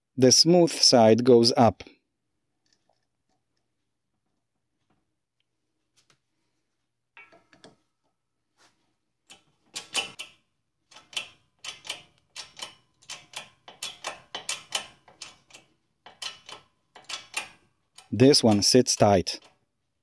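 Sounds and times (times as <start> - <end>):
sharp metallic clicks: 9.3 - 19.6.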